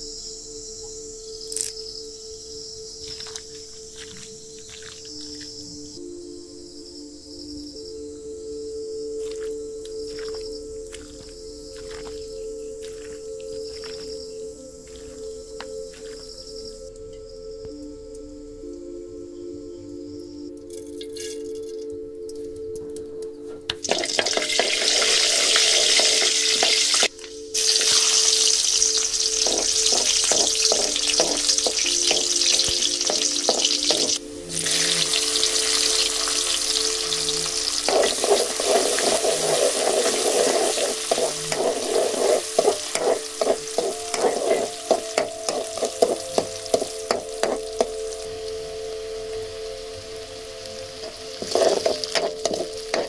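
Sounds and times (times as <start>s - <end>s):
shallots and garlic sizzling in oil: 23.7s - 53.0s.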